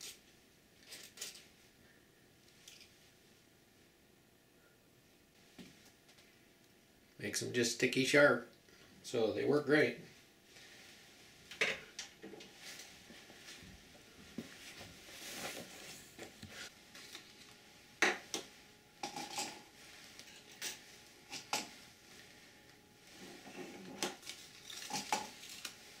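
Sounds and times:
soft scraping rustle: 12.4s - 17.6s, 19.5s - 26.0s.

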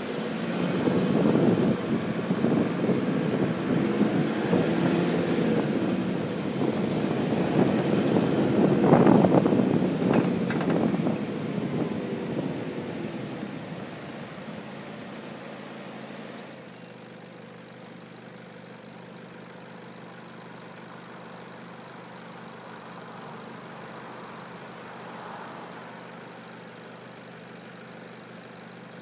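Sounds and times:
wind on microphone: 0.6s - 13.7s
engine idling: 8.2s - 29.0s.

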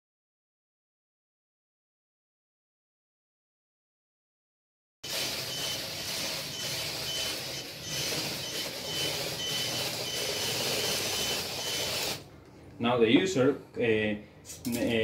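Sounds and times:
high-pitched electronic beeping: 5.0s - 12.2s.

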